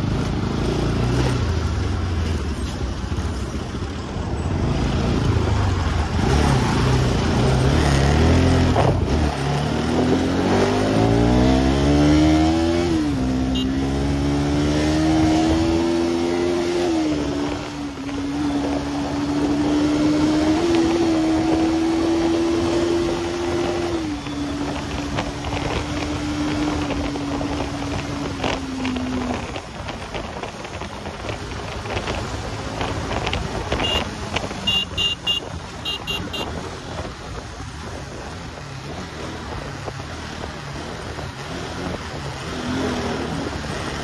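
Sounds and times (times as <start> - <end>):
motorcycle engine cruising: 0.0 - 44.0
wind and road noise: 0.0 - 44.0
short horn beeps: 13.5 - 13.8, 33.8 - 36.6.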